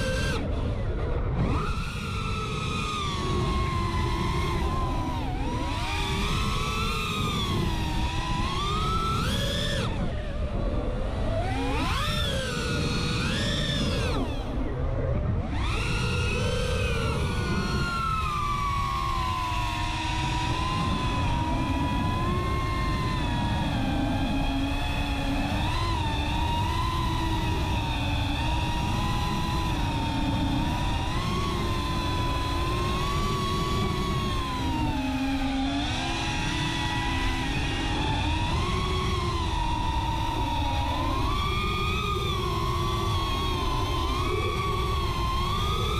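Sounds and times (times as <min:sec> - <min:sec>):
drone motors whining: 0:00.0 - 0:45.9
wind and prop wash rush: 0:00.0 - 0:45.9.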